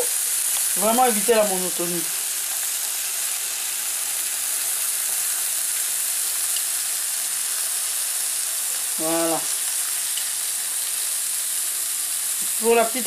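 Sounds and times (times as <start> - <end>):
fish sizzling on a grill: 0.0 - 13.0.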